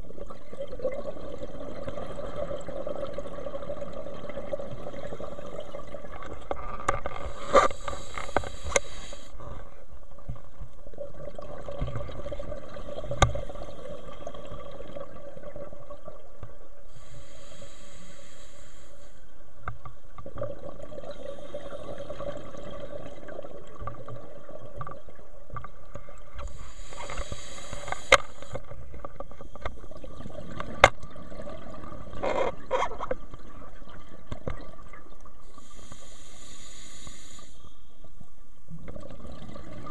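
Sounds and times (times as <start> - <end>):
regulator breathing hiss: 7.3 - 9.4, 16.9 - 19.3, 26.5 - 28.6, 35.5 - 37.9.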